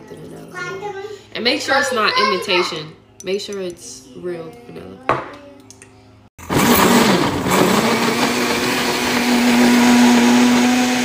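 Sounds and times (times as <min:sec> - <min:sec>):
countertop blender running: 0:06.4 - 0:11.0.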